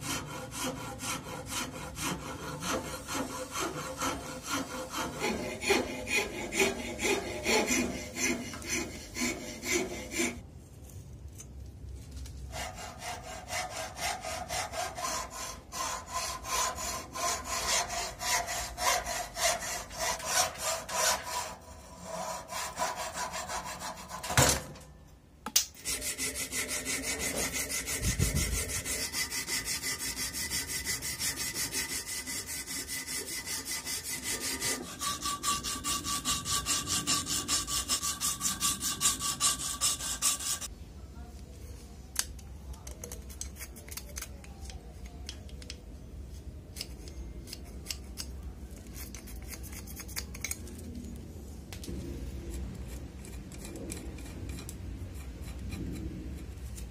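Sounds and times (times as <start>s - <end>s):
file scraping wood: 0.0s - 10.4s, 12.5s - 24.7s, 25.8s - 40.7s, 52.5s - 56.9s.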